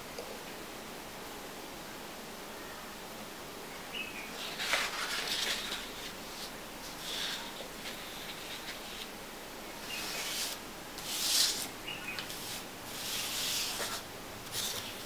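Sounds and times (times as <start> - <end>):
paper sliding across desk: 4.4 - 9.1, 9.8 - 15.0.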